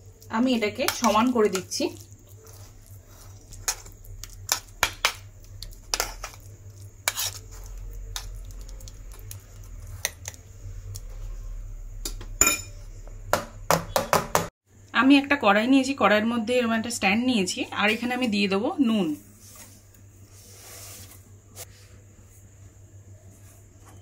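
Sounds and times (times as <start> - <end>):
metal spoon scraping metal bowl: 0.8 - 5.0, 5.8 - 8.3.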